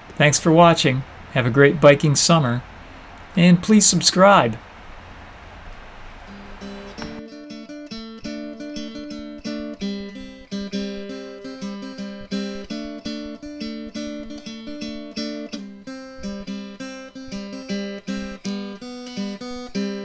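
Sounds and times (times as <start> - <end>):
acoustic guitar picking: 6.2 - 20.0.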